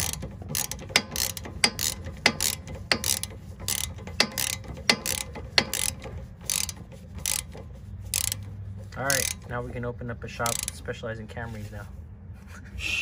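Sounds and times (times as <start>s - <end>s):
ratchet wrench clicking: 0.0s - 9.7s, 10.3s - 10.9s.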